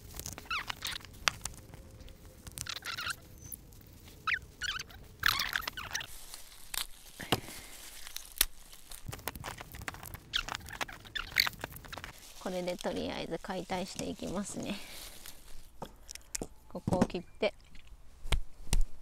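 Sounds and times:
crab shell cracking: 0:00.0 - 0:12.2
plastic gloves crinkling: 0:00.0 - 0:16.2.

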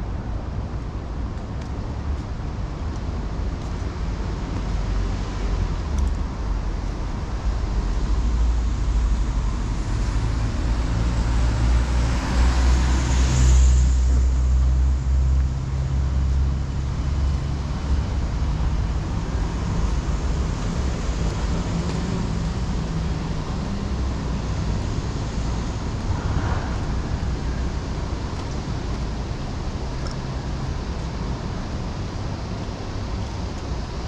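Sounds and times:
low roadside rumble: 0:00.0 - 0:34.0
vehicle passing by: 0:23.4 - 0:28.2.

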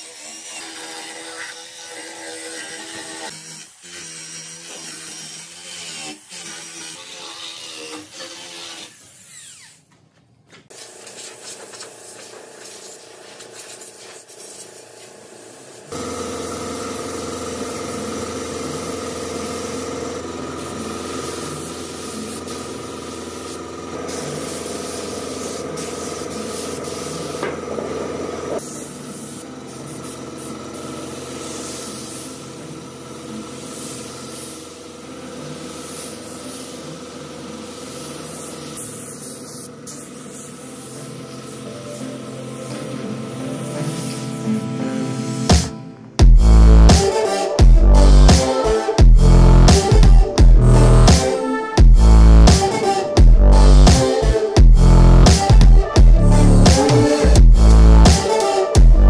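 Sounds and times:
angle grinder sanding wood: 0:00.0 - 0:09.9, 0:10.8 - 0:44.6, 0:56.2 - 0:59.0
spray gun hissing: 0:10.7 - 0:44.6.

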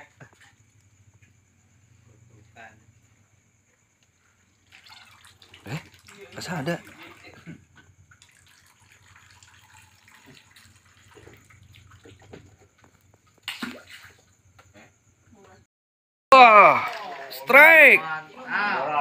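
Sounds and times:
water trickling and dripping: 0:04.0 - 0:14.7.

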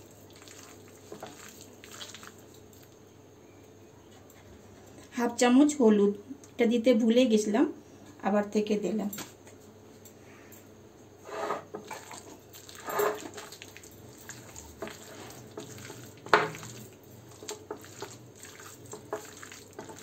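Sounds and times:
hand squishing wet meat: 0:00.0 - 0:03.0, 0:12.1 - 0:20.0.

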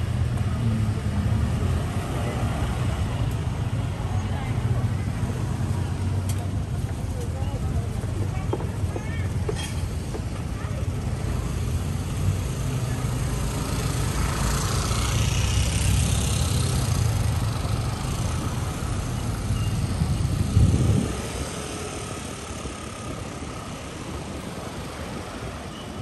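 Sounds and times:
traffic engines rumbling: 0:00.0 - 0:26.0
vehicle tyre noise passing: 0:11.0 - 0:26.0.

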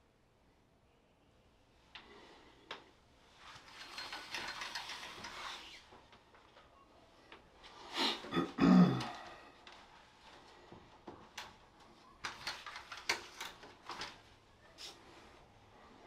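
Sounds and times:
curtain rings scraping along rod: 0:03.3 - 0:06.0.

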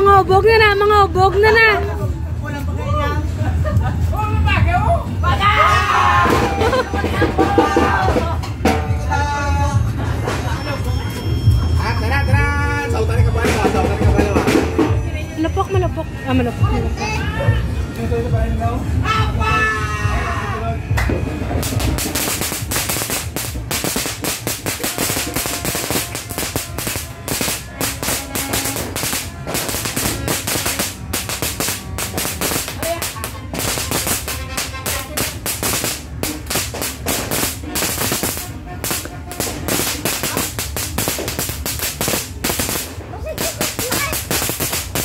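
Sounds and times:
firecrackers popping: 0:06.2 - 0:09.0, 0:20.9 - 0:45.0.

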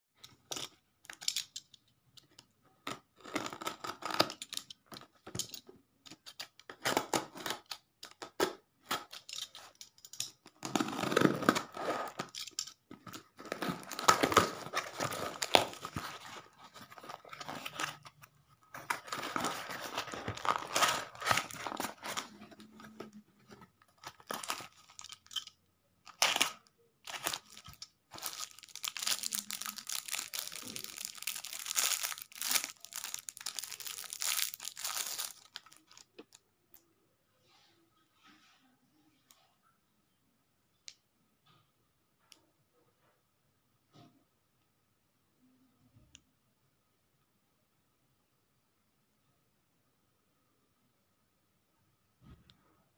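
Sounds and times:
plastic wrapper crinkling: 0:08.9 - 0:36.4
packing tape tearing: 0:10.6 - 0:22.4, 0:26.1 - 0:36.0.

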